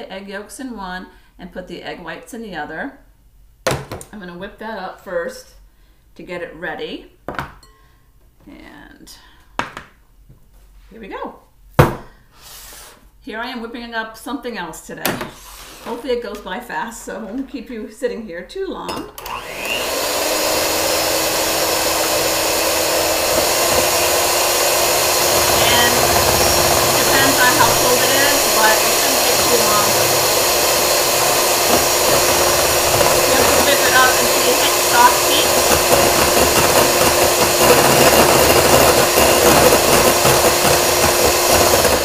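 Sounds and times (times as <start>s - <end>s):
electric hand mixer whipping: 19.2s - 42.0s.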